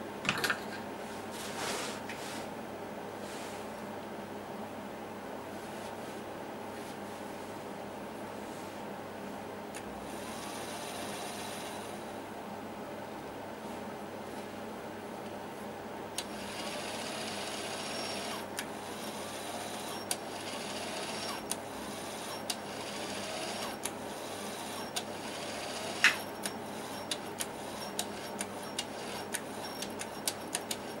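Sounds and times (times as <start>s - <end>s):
small motor whirring: 10.1s - 12.0s, 16.2s - 31.0s
sharp mechanical clicks: 24.6s - 31.0s.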